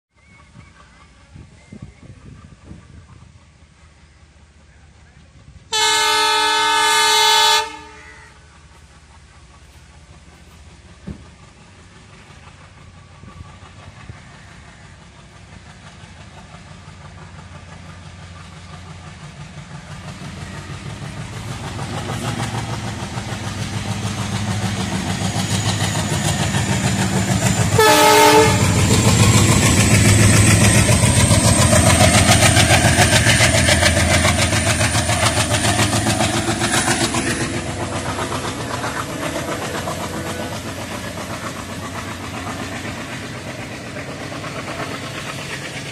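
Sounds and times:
diesel locomotive rumble: 0.2 - 45.9
train horn blast: 5.7 - 8.4, 27.7 - 29.0
train wheels rattling: 5.7 - 45.9.

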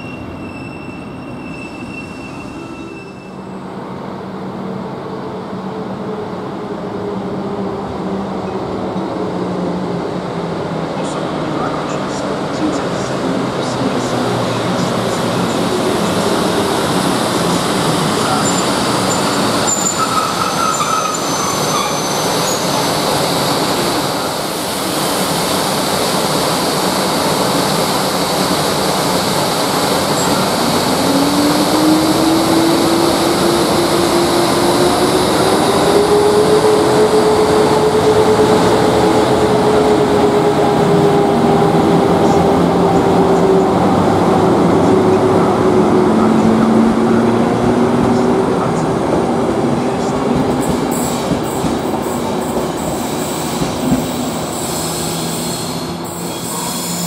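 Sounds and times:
train mechanical rush: 0.0 - 57.0
locomotive whine rising: 12.6 - 57.0.

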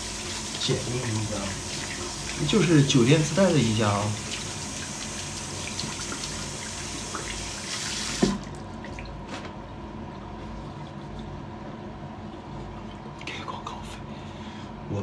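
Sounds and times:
tap water running into sink: 0.0 - 9.1.

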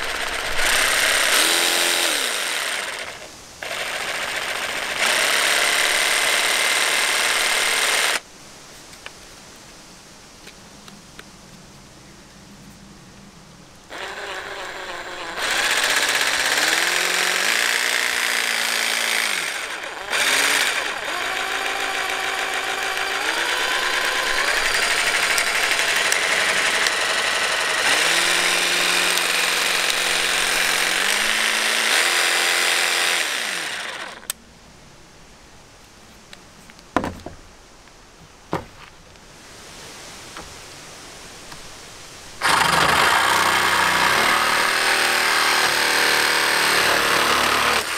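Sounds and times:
cordless jigsaw running: 0.0 - 8.2, 13.9 - 34.3, 42.4 - 47.9
jigsaw cutting wood: 0.0 - 8.2, 13.9 - 34.3, 42.4 - 47.9
sharp knocks: 37.0 - 37.4, 38.5 - 38.8.

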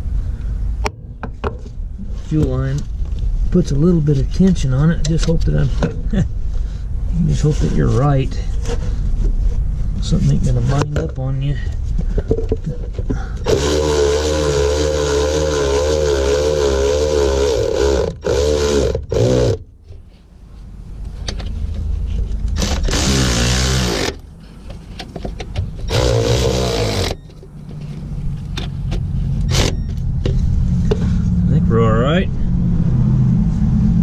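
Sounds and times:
electric ratchet whirring: 13.4 - 19.6, 22.5 - 24.3, 25.9 - 27.4, 29.4 - 30.0.

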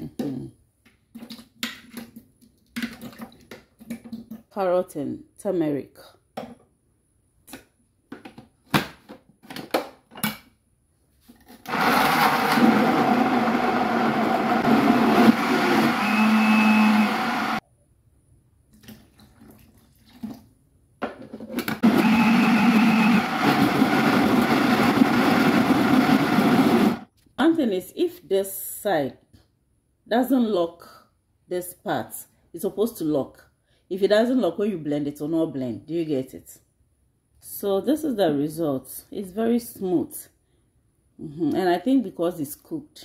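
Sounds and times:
blender running: 11.7 - 17.6, 21.8 - 27.1.

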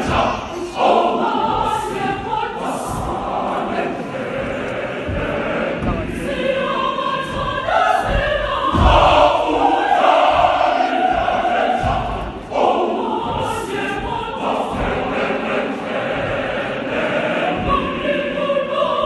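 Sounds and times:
choir singing in unison: 0.0 - 19.0
low thumps: 0.0 - 19.0.

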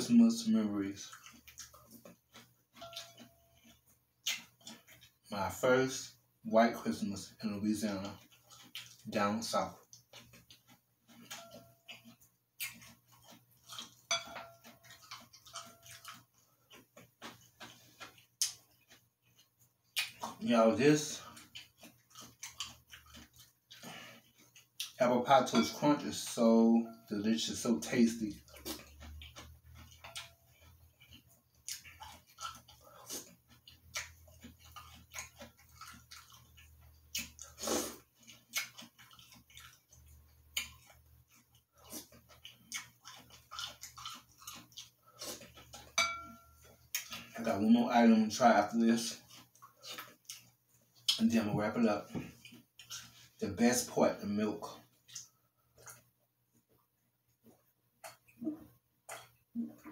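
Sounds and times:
cereal crunching chewing: 0.0 - 59.9
spoon clinking in glass bowl: 14.1 - 14.6, 46.0 - 46.6
slurp: 37.2 - 39.8.

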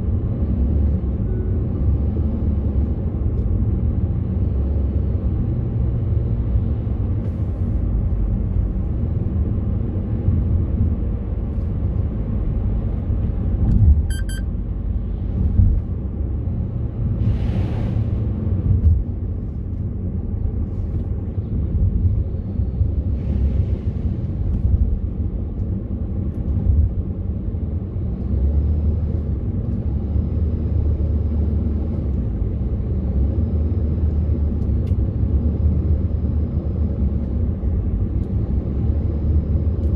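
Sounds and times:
car cabin road rumble: 0.0 - 39.9
high beep: 14.1 - 14.5.

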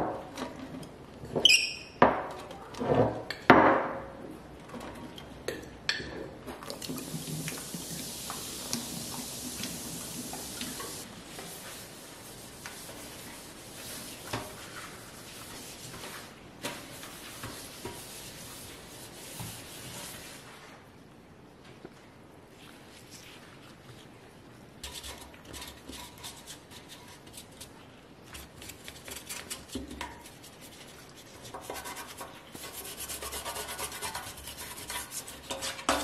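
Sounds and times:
steady hiss: 6.8 - 20.8
scrubbing metal sink: 6.9 - 20.5.

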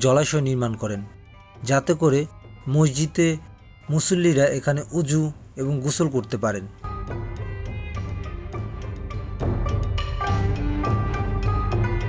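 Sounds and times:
background music with struck notes: 6.2 - 12.0.

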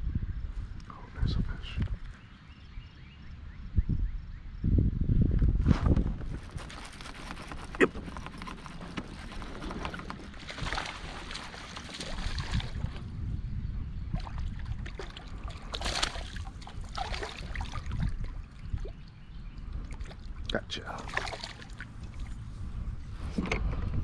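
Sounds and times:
water sloshing against hull: 6.4 - 13.1, 14.1 - 23.7
fish splashing at surface: 8.3 - 13.0, 14.4 - 18.2, 21.0 - 22.3
low steady rumble: 12.2 - 24.0.

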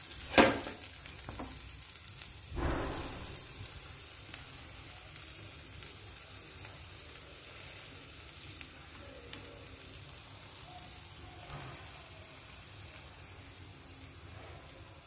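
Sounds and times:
food sizzling in a frying pan: 0.0 - 15.0.

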